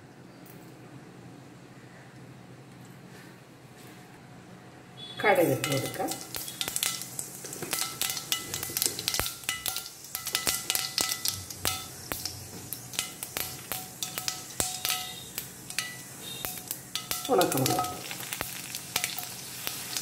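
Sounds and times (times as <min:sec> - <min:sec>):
mustard seeds popping in oil: 0:05.2 - 0:20.0.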